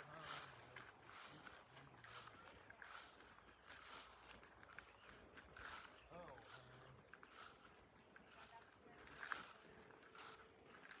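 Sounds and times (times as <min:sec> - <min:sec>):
faint distant voices: 0:00.0 - 0:11.0
footsteps walking: 0:00.0 - 0:11.0
insects droning: 0:00.0 - 0:11.0.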